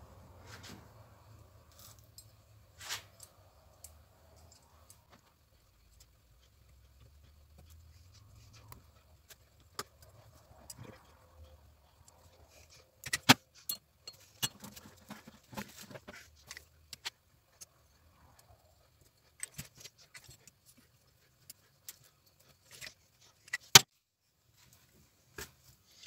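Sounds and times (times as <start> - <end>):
metallic clicks and clinks: 13.0 - 15.1.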